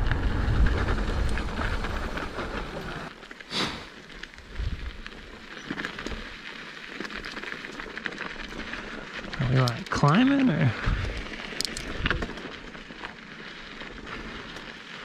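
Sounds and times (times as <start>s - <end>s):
wind rush: 0.0s - 2.8s
low rumble: 0.0s - 3.1s
bike tyres on dirt trail: 0.0s - 15.0s
crackles and ticks: 0.0s - 15.0s.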